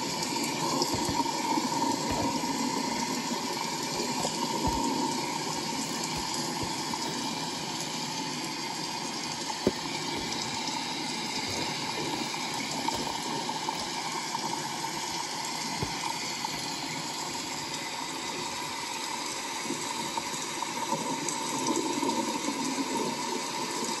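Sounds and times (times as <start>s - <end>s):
cardboard boxes knocking: 0.8s - 2.6s, 4.0s - 7.1s, 9.6s - 10.6s.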